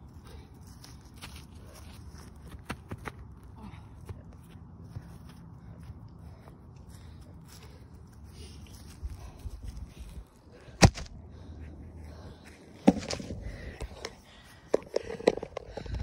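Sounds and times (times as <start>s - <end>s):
handling thumps and clicks: 12.8s - 16.0s.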